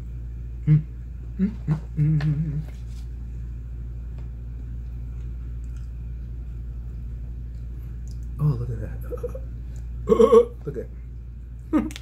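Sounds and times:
steady low hum: 0:00.0 - 0:12.0
man humming: 0:00.6 - 0:02.8, 0:08.4 - 0:09.5, 0:10.1 - 0:10.6.

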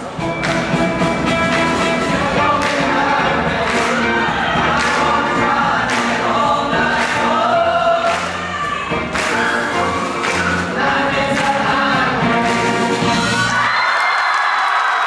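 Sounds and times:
live band accompaniment: 0:00.0 - 0:13.8
male choir singing in harmony: 0:01.8 - 0:08.4, 0:09.5 - 0:13.2.

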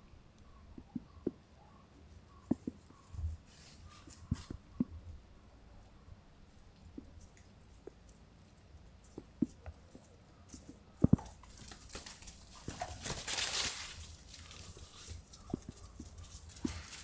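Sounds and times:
scraping rustling noise: 0:02.8 - 0:04.6, 0:07.2 - 0:17.0.

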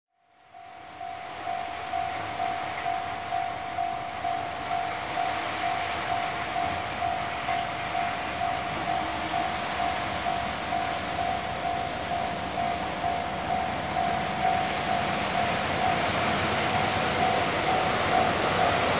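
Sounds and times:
high thin squeal: 0:07.0 - 0:11.9, 0:12.7 - 0:13.4, 0:16.1 - 0:18.6.

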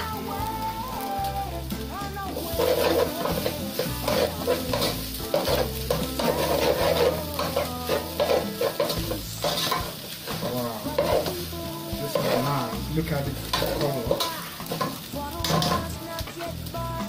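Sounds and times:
light frying sizzle: 0:00.0 - 0:17.0
metal spoon scraping metal pot: 0:02.5 - 0:11.4, 0:13.4 - 0:15.9.

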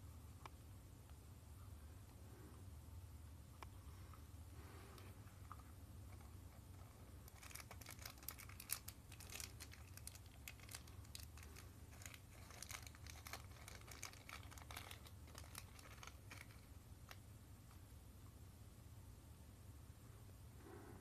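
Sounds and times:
plastic bag crinkling and tearing: 0:07.2 - 0:17.2.

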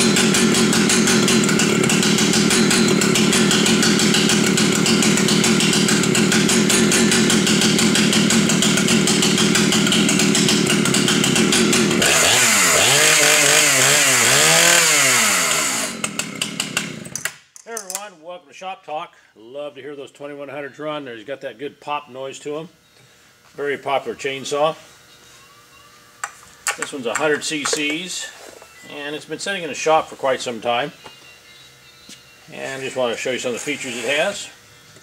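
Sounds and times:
chainsaw idling and revving: 0:00.0 - 0:17.3.

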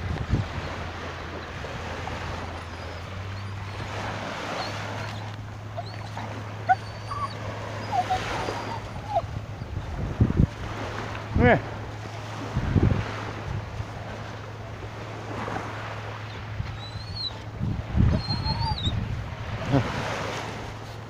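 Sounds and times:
wind noise on microphone: 0:00.0 - 0:04.3, 0:05.8 - 0:14.2, 0:16.5 - 0:21.0
dog whimpering: 0:02.3 - 0:10.0, 0:16.7 - 0:19.0.

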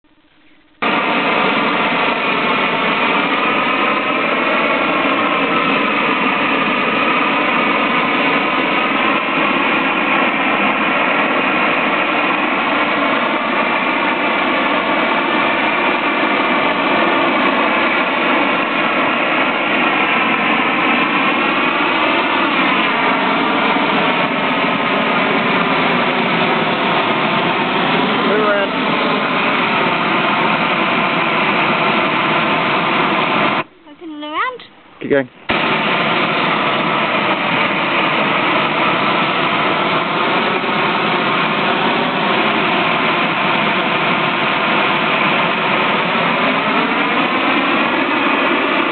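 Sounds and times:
faint wavering tone: 0:00.0 - 0:00.8
gas torch flame rushing: 0:00.0 - 0:33.7, 0:34.7 - 0:48.9.

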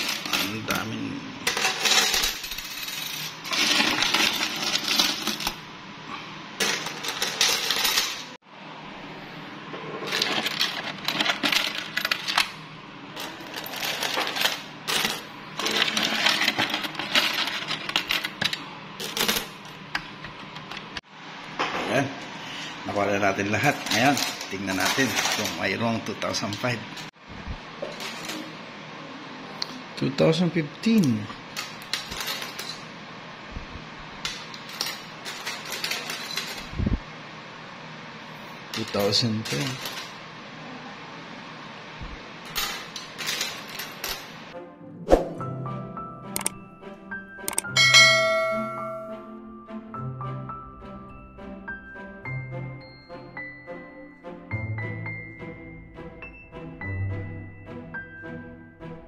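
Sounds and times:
coins clinking together: 0:00.0 - 0:05.6, 0:06.6 - 0:08.3, 0:13.2 - 0:19.8, 0:23.5 - 0:25.8, 0:31.6 - 0:32.9, 0:34.2 - 0:36.7, 0:38.7 - 0:40.2, 0:42.5 - 0:44.4, 0:47.4 - 0:49.2
coins clinking and jingling: 0:01.5 - 0:05.6, 0:06.6 - 0:08.3, 0:31.6 - 0:32.8, 0:34.6 - 0:36.8.

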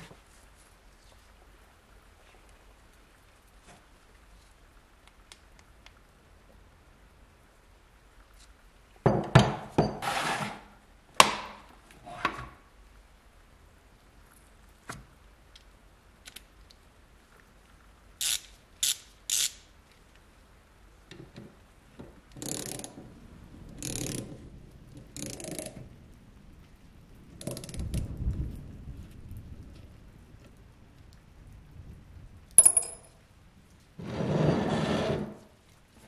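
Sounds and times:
socket ratchet clicking: 0:18.2 - 0:19.6, 0:22.4 - 0:22.9, 0:23.8 - 0:24.2.

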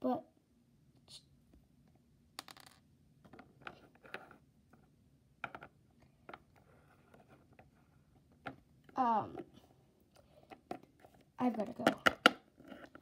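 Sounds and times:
plastic figurines tapping on wood: 0:11.7 - 0:12.4.

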